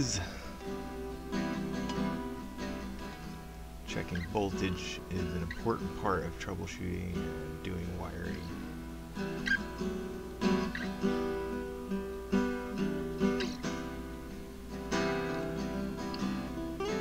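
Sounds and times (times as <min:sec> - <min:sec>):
plucked guitar music: 0:00.0 - 0:17.0.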